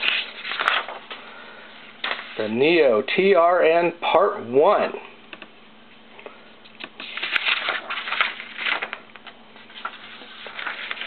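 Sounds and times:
paper rustling: 0:00.0 - 0:01.2, 0:02.0 - 0:02.4, 0:06.8 - 0:11.0.

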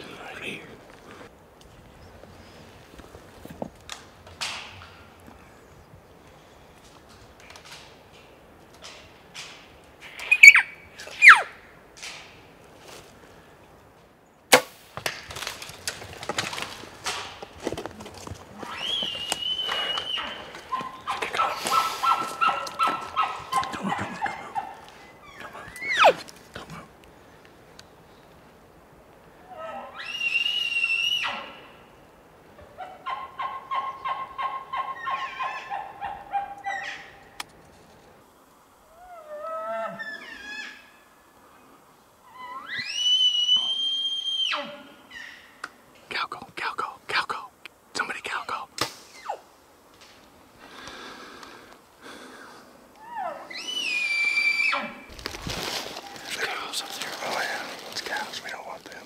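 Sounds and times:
snaps and rustles: 0:02.9 - 0:05.3, 0:06.3 - 0:11.3, 0:11.9 - 0:13.2, 0:14.5 - 0:28.4, 0:37.3 - 0:38.2, 0:48.7 - 0:49.3, 0:55.1 - 0:59.0
elk wavering call: 0:10.2 - 0:11.6, 0:42.2 - 0:45.4
bow shot crack: 0:14.5 - 0:15.3, 0:48.8 - 0:49.4
high whistling tone: 0:18.8 - 0:20.4
elk grunting chuckle: 0:23.6 - 0:24.8.

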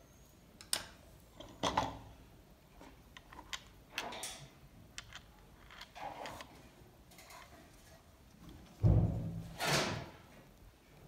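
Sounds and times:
plastic parts clicking and knocking: 0:02.8 - 0:07.5.

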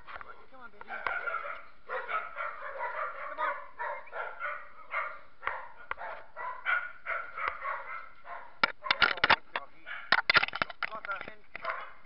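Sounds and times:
dogs barking: 0:00.0 - 0:10.3, 0:11.6 - 0:12.0
sharp clicks: 0:08.6 - 0:11.8.

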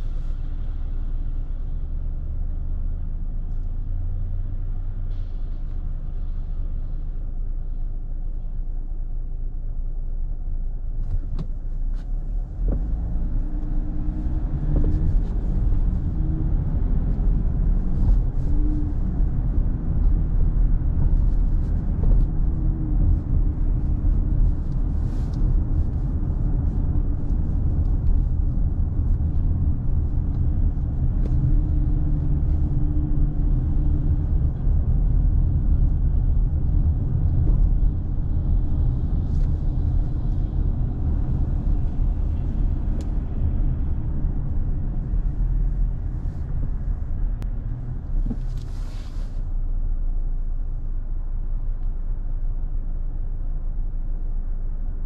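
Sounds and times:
car road and engine rumble: 0:00.0 - 0:55.0.

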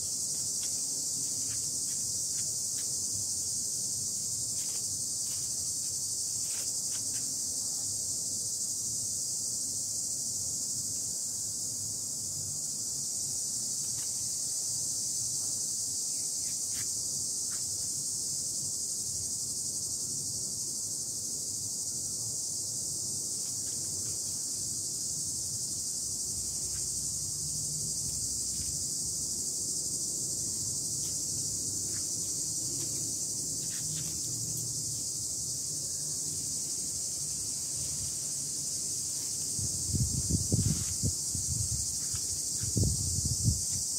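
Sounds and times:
insect chorus droning: 0:00.0 - 0:43.9.

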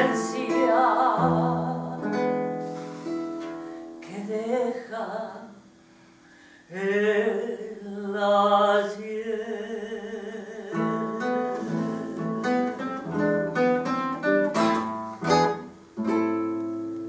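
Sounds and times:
woman singing: 0:00.0 - 0:02.4, 0:04.0 - 0:05.6, 0:06.7 - 0:13.2
classical guitar playing: 0:00.0 - 0:04.9, 0:10.2 - 0:17.0.

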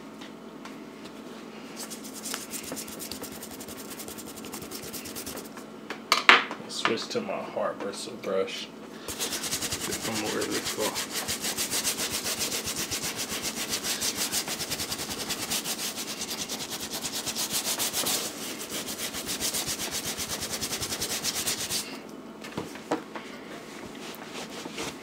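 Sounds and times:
stiff brush scrubbing: 0:01.8 - 0:05.6, 0:09.1 - 0:22.0.

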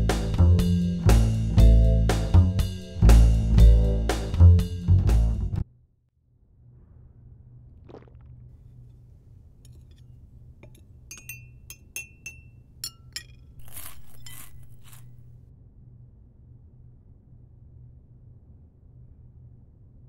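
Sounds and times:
steady low hum: 0:00.0 - 0:05.6
spoon clinking against ceramic: 0:10.6 - 0:15.2
rustle: 0:13.6 - 0:15.3.

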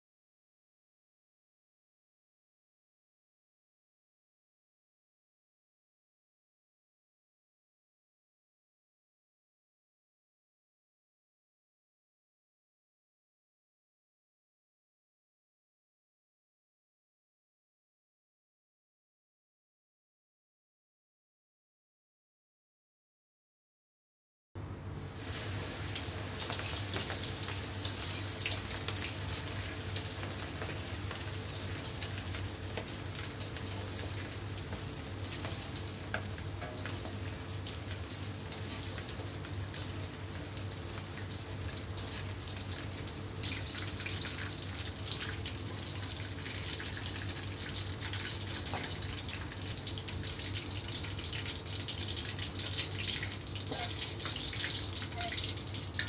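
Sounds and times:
food deep-frying in hot oil: 0:25.0 - 0:56.0.

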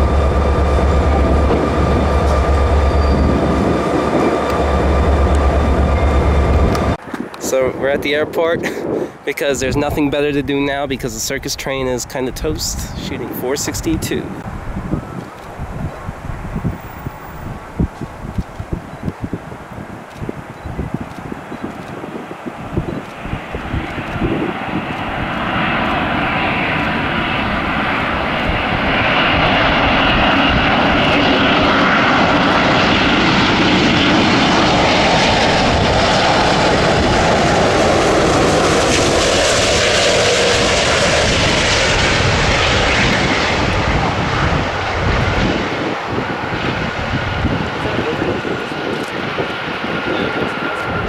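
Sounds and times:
jet airliner flying overhead: 0:00.0 - 0:51.0
jet engine whine: 0:00.0 - 0:51.0
wind rumble on microphone: 0:00.0 - 0:51.0.

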